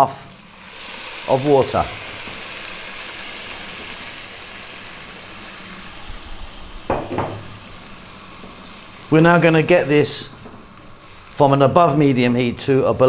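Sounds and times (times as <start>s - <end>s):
water hissing into hot pot: 0.0s - 12.9s
short knocks: 6.9s - 7.5s.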